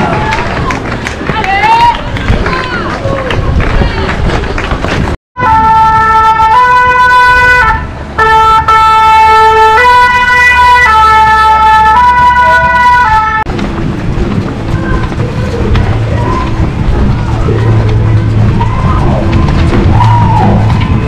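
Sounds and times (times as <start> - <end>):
two-tone emergency siren: 5.4 - 13.5.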